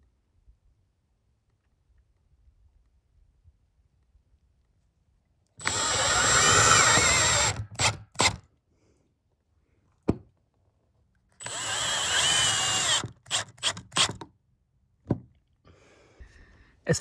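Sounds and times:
power drill driving screws into metal: 0:05.6 - 0:08.4, 0:11.4 - 0:14.3.

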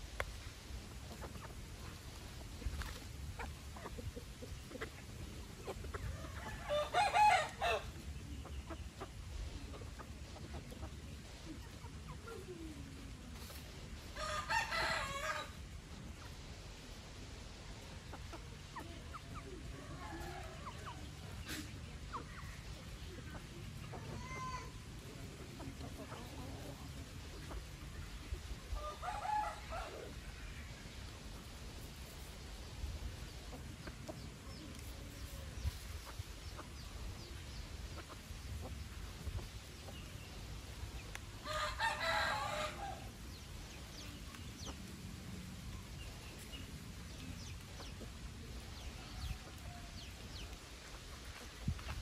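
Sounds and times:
chickens chirping: 0:00.0 - 0:52.0
chickens clucking: 0:00.0 - 0:52.0
rooster crowing: 0:06.4 - 0:07.9, 0:14.2 - 0:15.5, 0:41.4 - 0:43.1.

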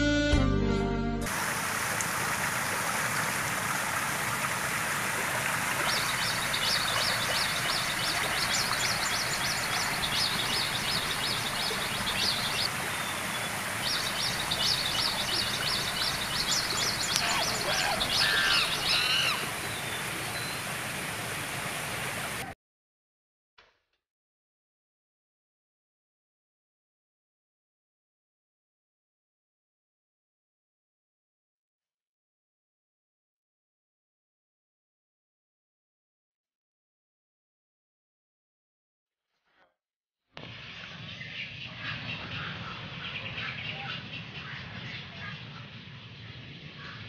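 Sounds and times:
harsh low bird calls: 0:05.7 - 0:20.8
rapid high bird chirps: 0:05.8 - 0:20.6.

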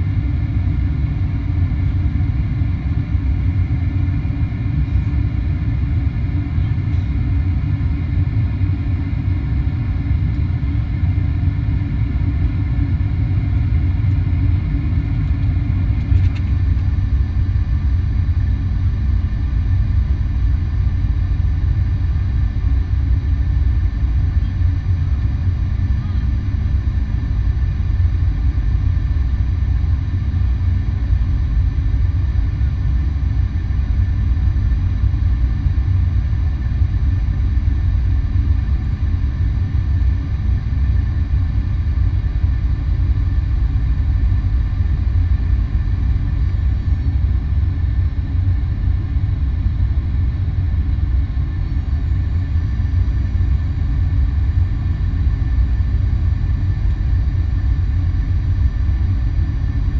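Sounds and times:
jet engines low rumble: 0:00.0 - 0:59.9
faint high whine: 0:23.8 - 0:28.3.

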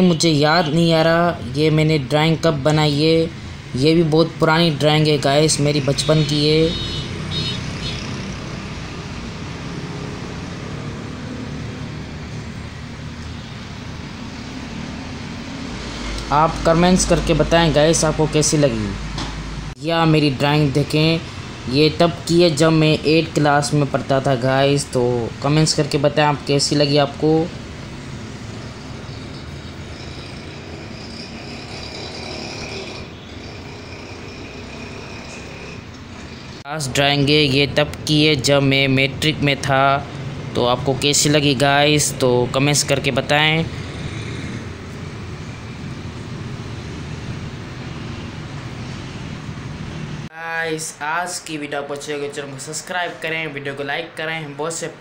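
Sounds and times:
high-pitched whine: 0:10.0 - 0:50.3.

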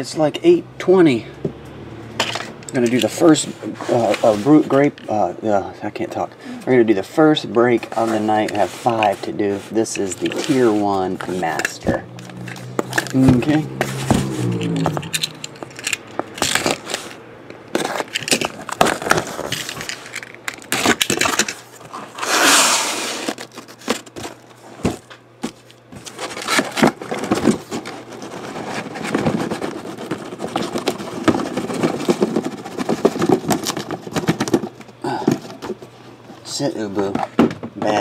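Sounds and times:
cardboard scraping and rustling: 0:03.0 - 0:05.0, 0:07.8 - 0:20.1, 0:20.7 - 0:38.0
packing tape tearing: 0:11.4 - 0:24.4, 0:25.5 - 0:34.8.

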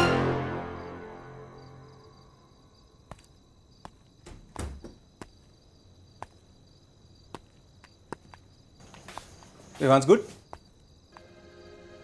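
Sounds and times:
background music: 0:00.0 - 0:02.5, 0:11.2 - 0:12.0
crickets chirping: 0:00.3 - 0:12.0.

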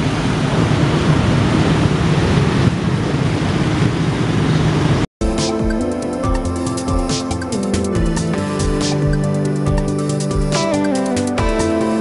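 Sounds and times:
electronic music with steady beat: 0:05.2 - 0:12.0.

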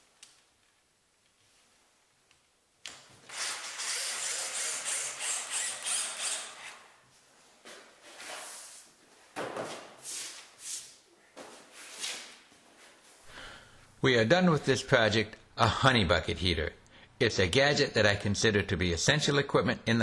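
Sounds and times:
power drill whirring: 0:03.3 - 0:06.9.

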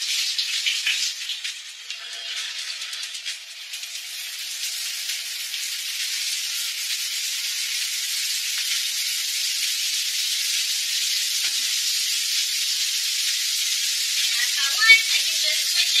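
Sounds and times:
shower water spraying: 0:00.0 - 0:16.0.

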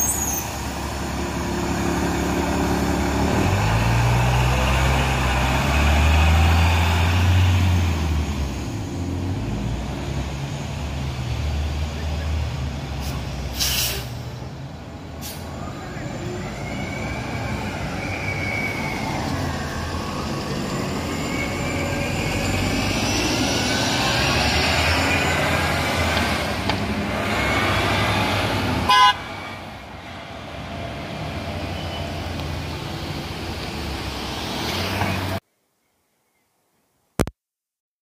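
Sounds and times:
bus engine pulling away: 0:00.0 - 0:35.4
street traffic: 0:00.0 - 0:35.5
bus horn toot: 0:28.9 - 0:29.3.

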